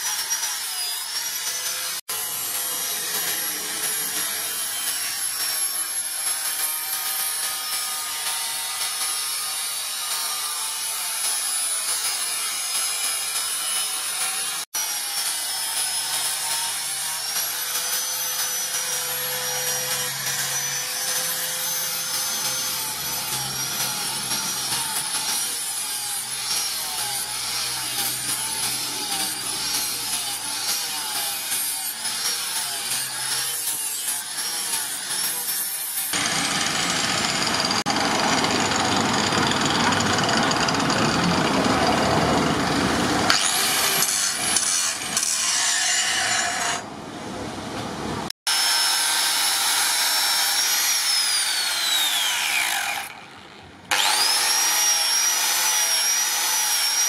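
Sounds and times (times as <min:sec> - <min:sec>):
angle grinder grinding metal: 0:00.0 - 0:46.9, 0:48.5 - 0:57.0.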